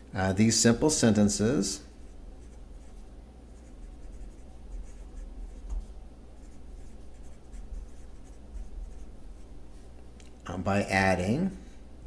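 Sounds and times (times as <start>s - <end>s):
low steady hum: 0.0s - 12.0s
pencil scratching on paper: 3.6s - 5.8s, 6.4s - 9.1s.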